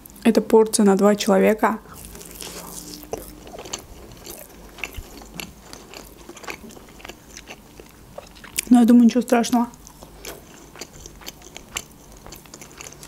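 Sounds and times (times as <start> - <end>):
chewing meat: 1.8 - 13.0.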